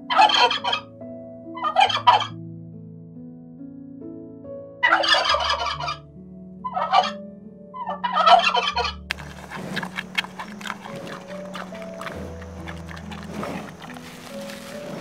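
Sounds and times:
soft background music: 0:00.0 - 0:15.0
crackling rustling noise: 0:09.1 - 0:15.0.

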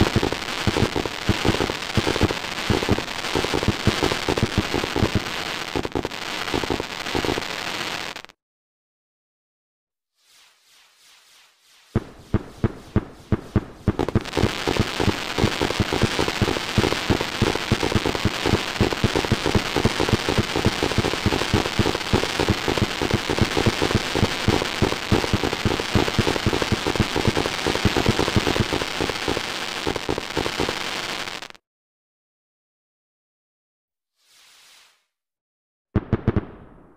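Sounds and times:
fireworks crackling bangs: 0:00.0 - 0:08.3, 0:11.9 - 0:31.5, 0:36.0 - 0:36.9.

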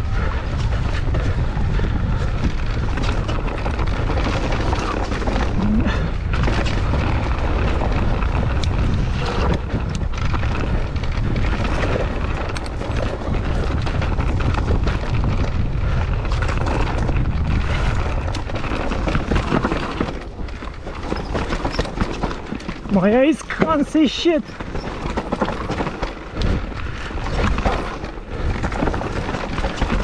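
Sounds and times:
low rumble: 0:00.0 - 0:19.5
bike tyres clicking and rattling: 0:00.0 - 0:30.0
wind buffeting microphone: 0:00.0 - 0:30.0.

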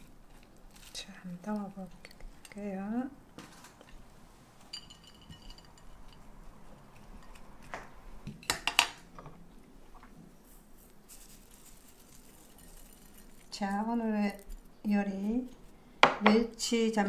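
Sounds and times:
utensils clinking on pan and plate: 0:04.6 - 0:06.4.

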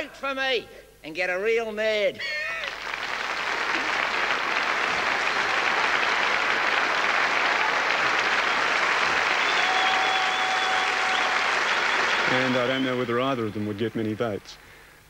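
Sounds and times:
audience applauding: 0:02.4 - 0:14.4.

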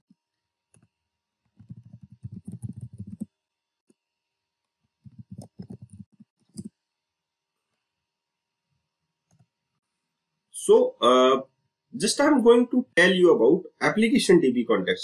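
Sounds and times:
keyboard keys clicking: 0:01.6 - 0:03.3, 0:05.1 - 0:06.7.

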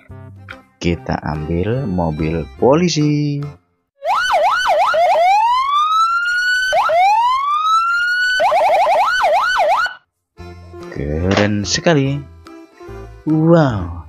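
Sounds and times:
police car siren: 0:04.0 - 0:10.1.

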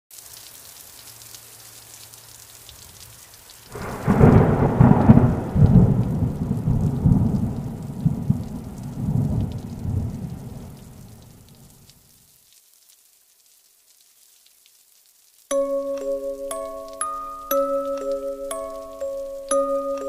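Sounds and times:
rain hiss: 0:00.1 - 0:20.0
thunderclap rumbling: 0:03.7 - 0:11.5.

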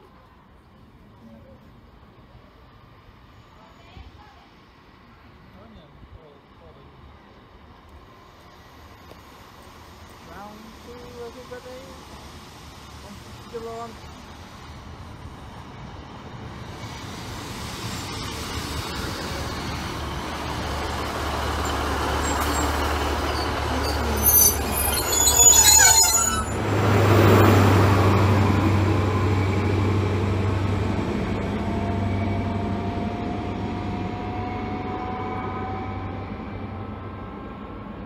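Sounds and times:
train brakes squealing: 0:03.3 - 0:04.3, 0:21.2 - 0:26.7
diesel train engine humming: 0:07.0 - 0:38.0.

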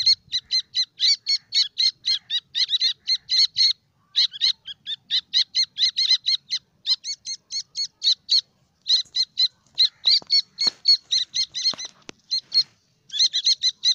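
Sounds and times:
chicks peeping: 0:07.8 - 0:13.9.

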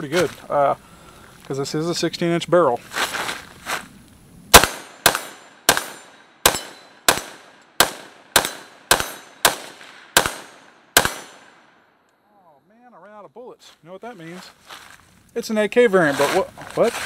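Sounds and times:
rifle firing rapid shots: 0:04.5 - 0:11.6.

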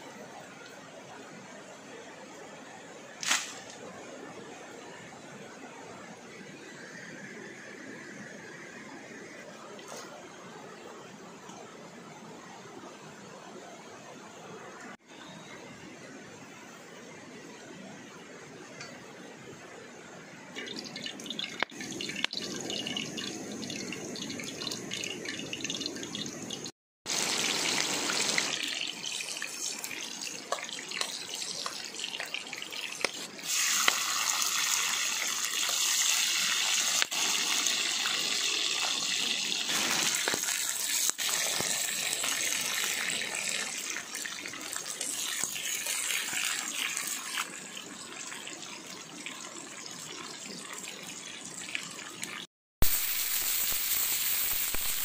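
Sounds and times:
running splashing water: 0:20.6 - 0:48.6.

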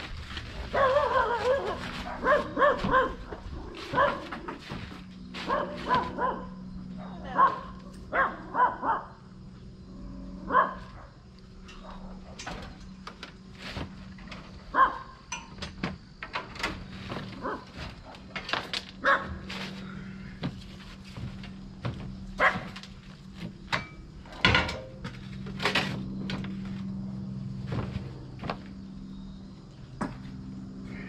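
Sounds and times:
steady low hum: 0:00.0 - 0:31.0
dog barking: 0:00.7 - 0:04.4, 0:05.4 - 0:09.2, 0:10.4 - 0:12.4, 0:14.7 - 0:15.2, 0:17.4 - 0:17.7, 0:19.0 - 0:19.4, 0:22.4 - 0:22.8
debris knocking and clattering: 0:20.4 - 0:26.6.

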